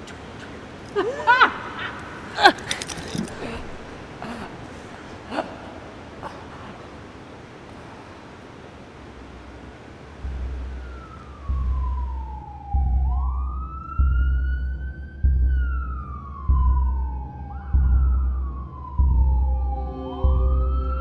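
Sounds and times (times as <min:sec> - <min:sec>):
emergency siren wailing: 0:10.2 - 0:21.0.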